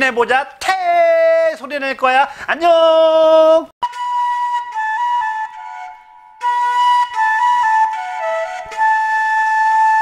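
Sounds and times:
solo flute melody: 3.8s - 10.0s.

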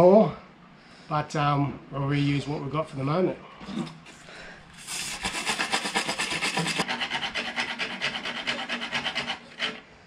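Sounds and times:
file rasping on metal thread: 5.1s - 9.9s.

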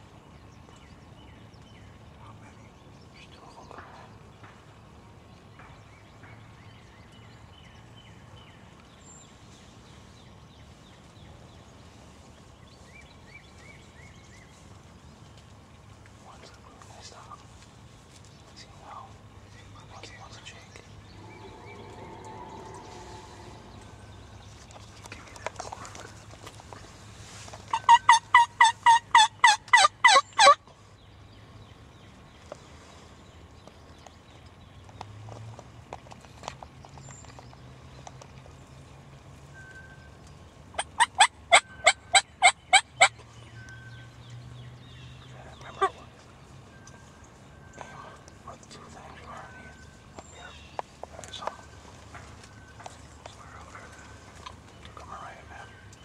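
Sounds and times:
low steady rumble: 0.0s - 27.3s
faint bird calls: 18.5s - 26.2s, 45.1s - 56.0s
turkey yelps: 27.7s - 30.6s, 40.8s - 43.1s.

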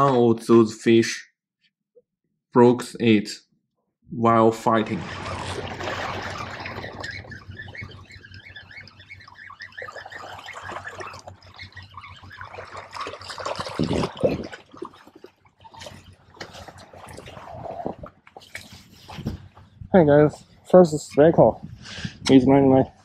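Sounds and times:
waves lapping against rocks: 4.9s - 8.1s, 9.9s - 19.6s.

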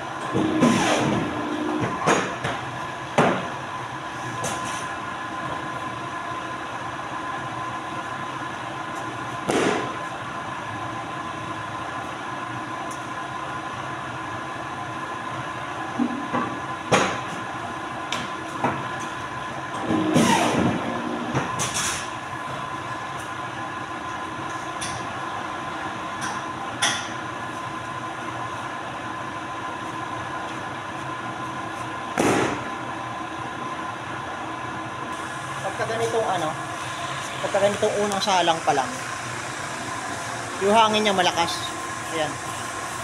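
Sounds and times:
paper cutter machine hum: 0.0s - 2.2s, 19.4s - 21.6s, 35.1s - 43.0s.

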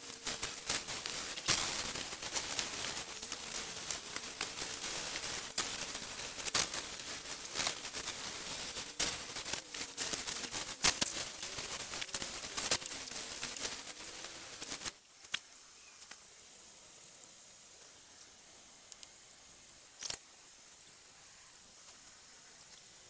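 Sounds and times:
scattered crackles: 0.0s - 16.3s, 19.9s - 20.3s.

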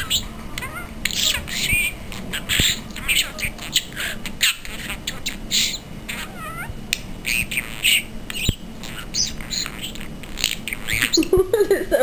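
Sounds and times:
budgerigar chirping and squawking: 0.0s - 11.3s
budgerigar warbling: 0.0s - 11.3s.

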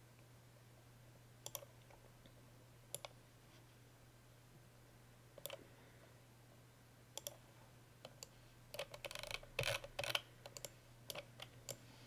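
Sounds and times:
faint low hum: 0.0s - 12.0s
mouse and keyboard clicks: 8.0s - 11.8s.

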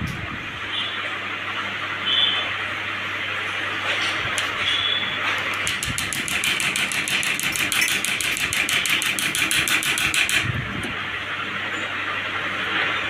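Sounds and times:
rapid electrical clicks: 5.3s - 10.6s.

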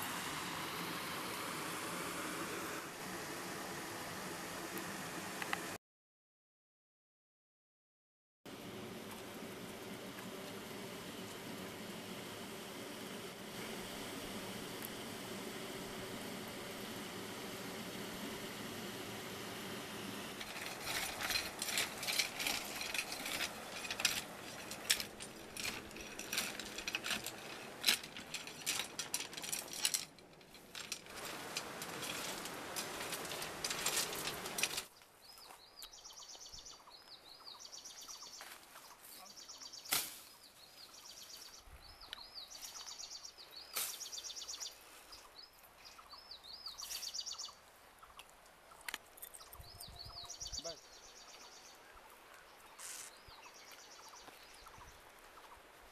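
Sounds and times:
sticks and branches crackling: 20.1s - 35.9s, 38.4s - 40.5s
birds chirping: 20.4s - 55.8s.

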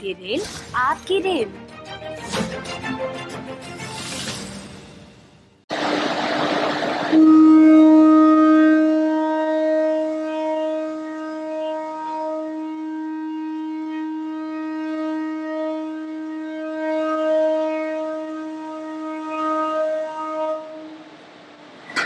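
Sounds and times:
locomotive horn long note: 5.7s - 21.5s.

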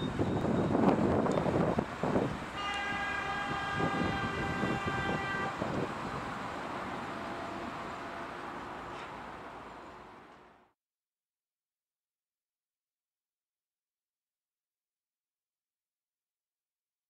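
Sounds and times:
freight wagons rumbling on rails: 0.0s - 10.7s
locomotive horn: 2.5s - 5.9s, 6.9s - 9.0s.

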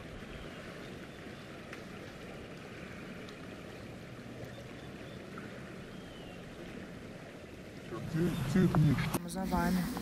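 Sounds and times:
stream flowing: 0.0s - 10.0s.

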